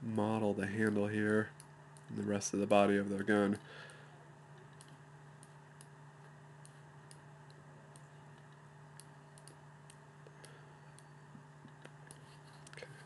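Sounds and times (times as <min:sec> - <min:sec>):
steady low hum: 0:00.0 - 0:13.0
computer mouse clicks: 0:04.6 - 0:06.0, 0:06.6 - 0:11.1, 0:11.7 - 0:13.0.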